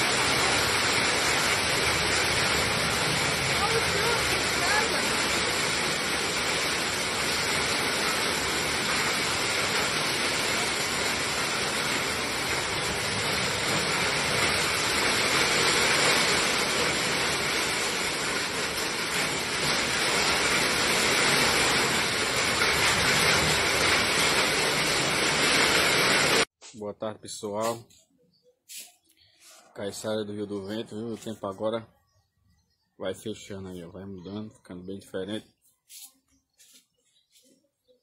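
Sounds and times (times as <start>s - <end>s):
heavy rain and hail: 0.0s - 26.5s.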